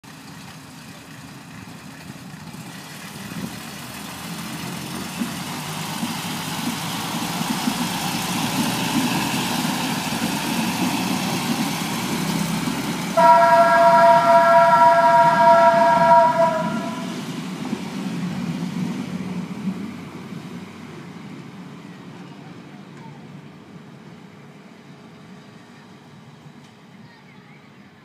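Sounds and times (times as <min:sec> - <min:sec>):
diesel railbus engine rumble: 0:00.0 - 0:28.0
train horn blast: 0:13.2 - 0:17.2.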